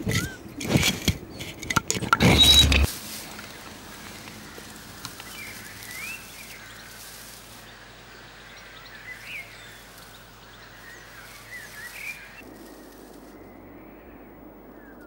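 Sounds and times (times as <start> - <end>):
beavers squeaking: 0.0 - 2.9
outdoor hiss: 2.8 - 12.4.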